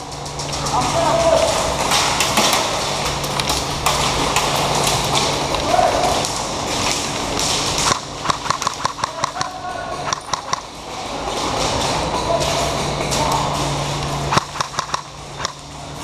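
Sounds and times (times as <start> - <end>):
handling and movement noise: 0.0 - 16.0
sharp irregular clicks: 7.4 - 10.7, 11.8 - 15.6.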